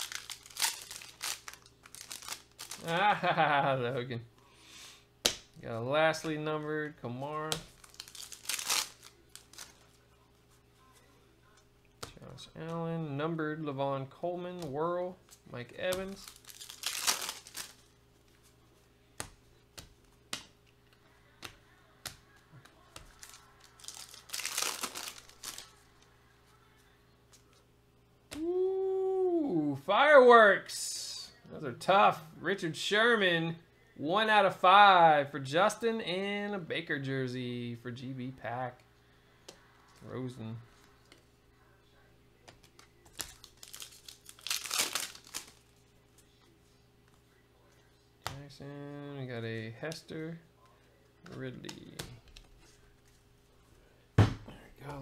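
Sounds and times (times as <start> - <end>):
foil pack crinkling: 0.0 - 3.4, 7.7 - 9.8, 15.9 - 17.8, 23.0 - 25.8, 43.0 - 45.8.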